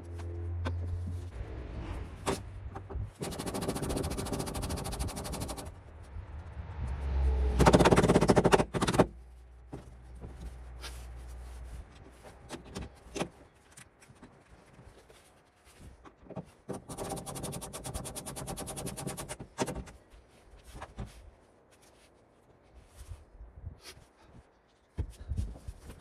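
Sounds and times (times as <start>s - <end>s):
low hum: 0.0s - 4.5s.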